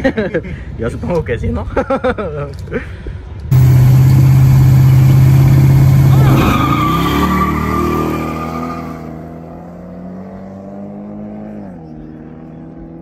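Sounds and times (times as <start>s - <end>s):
car engines revving: 3.5s - 13.0s
tyre squeal: 5.8s - 9.1s.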